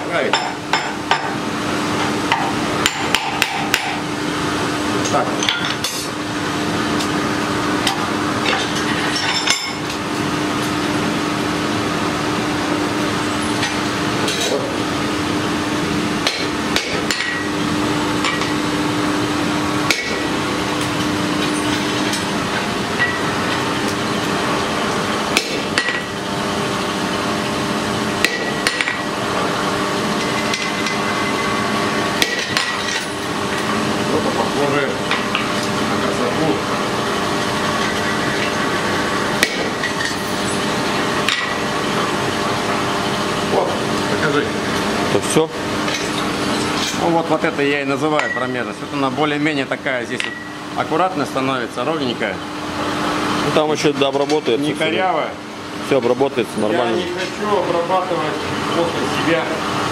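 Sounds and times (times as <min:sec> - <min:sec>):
steady hum: 0:00.0 - 0:59.9
hammer striking hot steel: 0:02.3 - 0:04.0, 0:16.2 - 0:17.6, 0:19.8 - 0:22.3, 0:25.3 - 0:26.1, 0:28.2 - 0:29.1, 0:32.2 - 0:33.6, 0:39.4 - 0:40.3, 0:41.2 - 0:41.6, 0:50.1 - 0:50.5.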